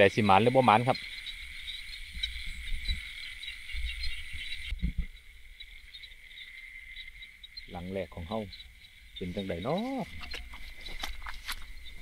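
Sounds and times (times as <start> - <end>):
crickets chirring: 0.0 - 12.0
footsteps through grass: 9.7 - 12.0.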